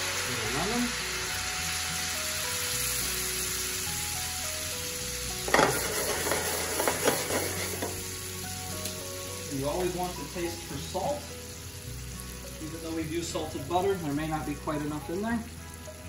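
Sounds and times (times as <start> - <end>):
butter sizzling in a skillet: 0.0 - 16.0
pan clanking on burner grate: 5.4 - 8.0.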